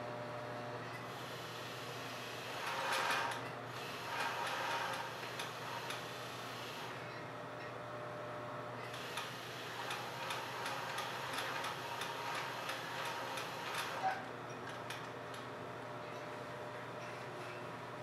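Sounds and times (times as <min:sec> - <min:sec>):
sewing machine stitching: 0:02.6 - 0:05.1, 0:08.9 - 0:14.1.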